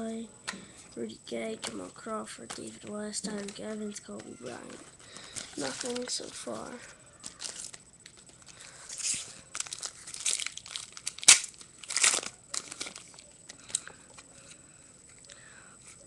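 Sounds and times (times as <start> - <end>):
foil wrapper crinkling and tearing: 4.6 - 13.9.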